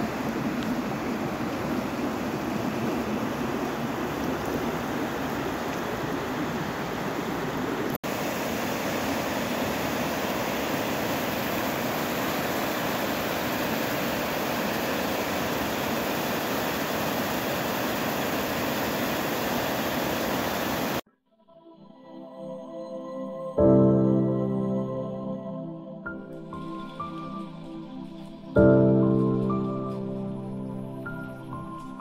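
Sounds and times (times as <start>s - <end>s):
river rapids rushing: 0.0s - 21.0s.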